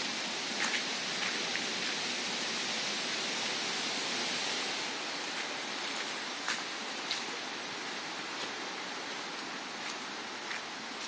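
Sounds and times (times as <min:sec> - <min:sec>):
rushing hiss of outdoor noise: 0:00.0 - 0:11.0.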